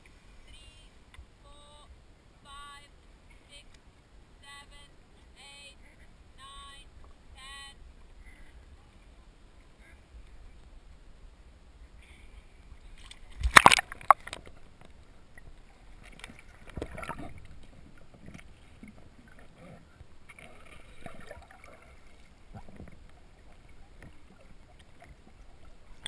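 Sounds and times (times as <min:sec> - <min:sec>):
muffled water sloshing and gurgling: 0:12.0 - 0:26.0
water splashing: 0:12.6 - 0:26.0.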